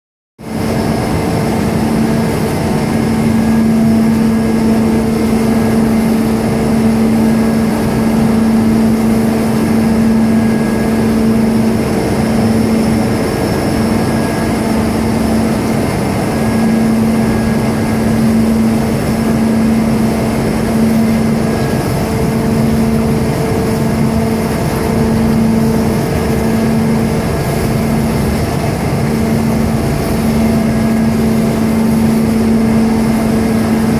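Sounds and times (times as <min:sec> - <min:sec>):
press machinery running: 0:00.5 - 0:33.9.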